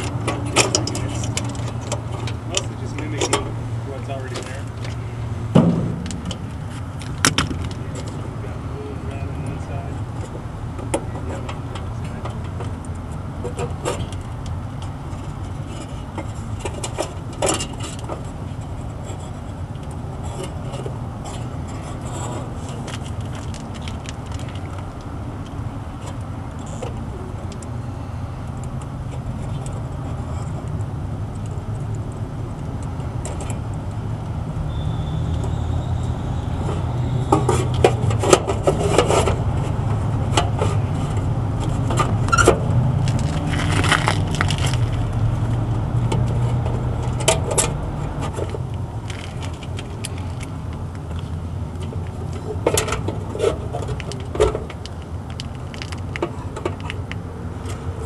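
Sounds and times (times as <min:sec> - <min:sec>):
clicks and rattles of handling parts: 0:00.0 - 0:05.0, 0:10.1 - 0:27.7, 0:28.5 - 0:34.3, 0:37.3 - 0:58.0.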